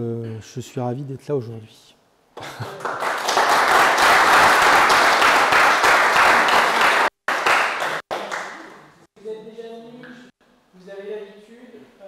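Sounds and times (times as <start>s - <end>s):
audience applauding: 2.6s - 8.8s.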